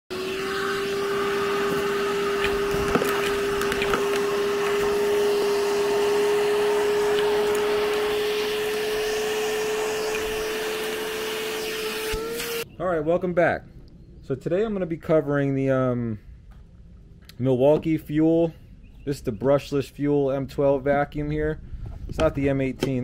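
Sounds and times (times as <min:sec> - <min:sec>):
vacuum cleaner running: 0:00.1 - 0:12.6.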